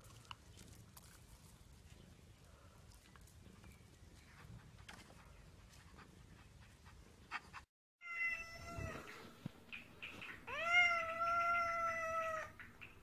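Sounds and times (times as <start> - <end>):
cat meowing: 8.0 - 9.2, 10.5 - 12.6.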